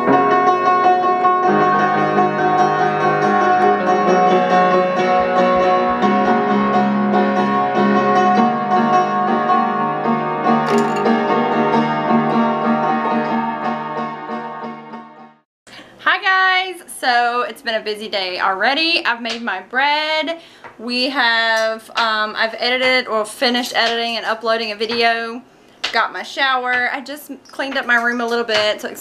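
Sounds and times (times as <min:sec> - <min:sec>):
piano notes and chords: 0:00.0 - 0:15.4.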